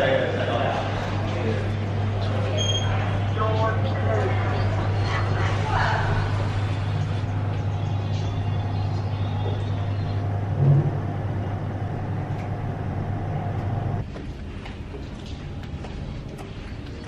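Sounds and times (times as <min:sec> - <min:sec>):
lift cab humming: 0:01.7 - 0:14.0.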